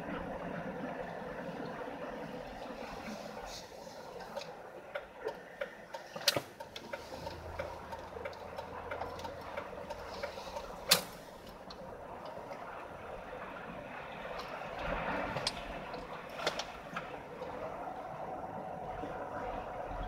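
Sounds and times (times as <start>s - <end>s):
tyre and road noise: 0.0s - 20.0s
small irregular clicks: 4.1s - 12.9s, 14.3s - 17.6s.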